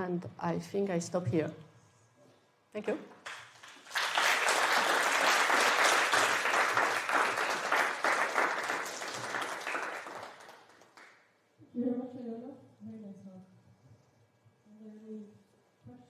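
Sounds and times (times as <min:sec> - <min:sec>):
audience applauding: 0:03.2 - 0:11.2.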